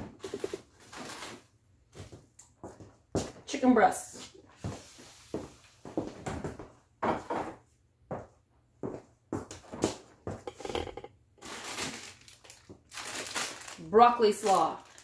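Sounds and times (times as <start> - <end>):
glass dish clattering: 10.4 - 11.1.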